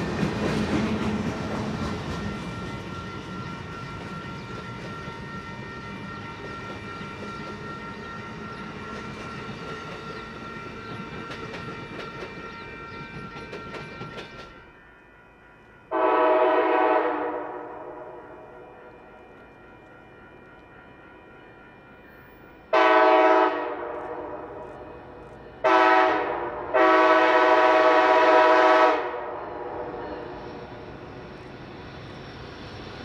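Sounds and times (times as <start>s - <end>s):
train wheels clicking over rails: 0.0s - 14.7s
locomotive air horn: 15.9s - 18.6s, 22.7s - 24.7s, 25.6s - 30.2s.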